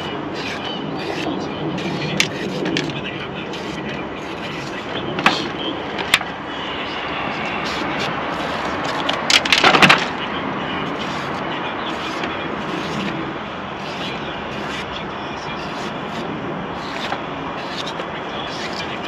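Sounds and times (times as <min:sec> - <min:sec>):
knife cutting peppers: 0:00.0 - 0:03.0.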